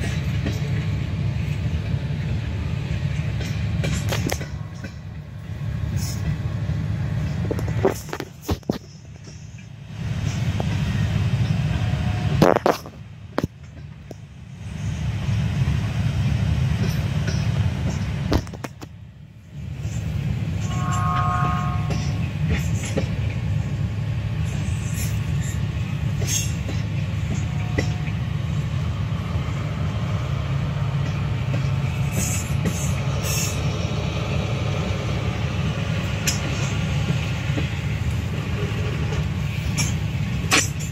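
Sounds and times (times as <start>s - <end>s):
train wheels rumbling on rail: 0.0s - 40.9s
high ringing tone: 20.6s - 22.3s.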